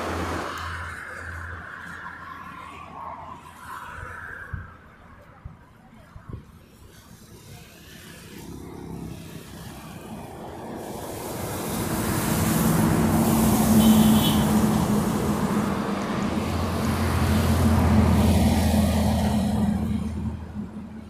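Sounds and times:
motor vehicle passing: 0:06.9 - 0:21.0.

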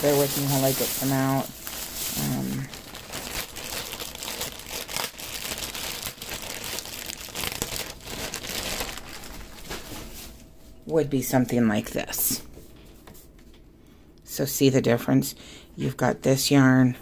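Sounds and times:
bag crinkling and rustling: 0:00.0 - 0:10.5.

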